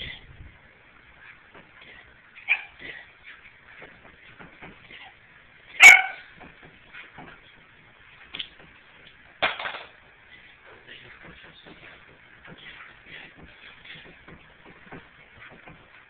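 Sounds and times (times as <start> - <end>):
dog barking: 2.4 - 2.8, 5.8 - 6.3.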